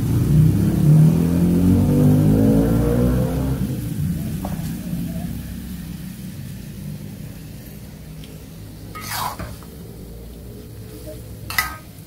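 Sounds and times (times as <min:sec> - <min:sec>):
metal spoon scraping a wok: 0:08.8 - 0:10.0, 0:10.7 - 0:12.0.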